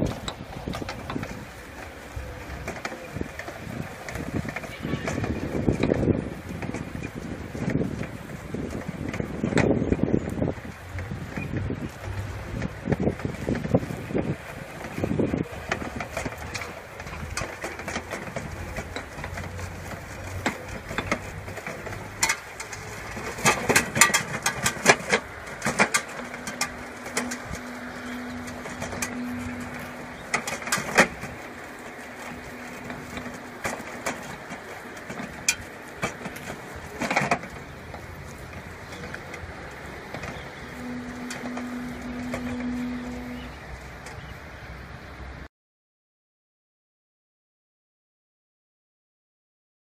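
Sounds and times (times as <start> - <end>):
barrow knocks and rattles: 15.6 - 39.3
electric motor hum: 18.1 - 44.0.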